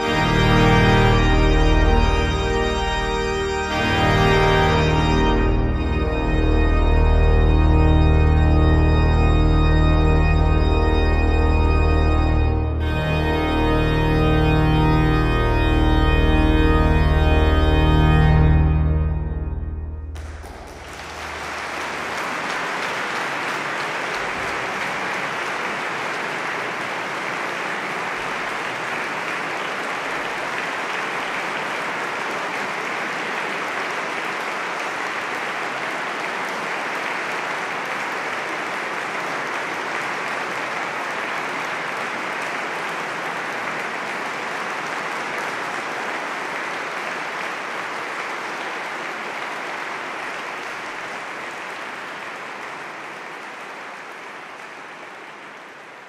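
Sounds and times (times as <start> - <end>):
organ chord: 0.0 - 22.2
audience applauding: 0.0 - 56.0.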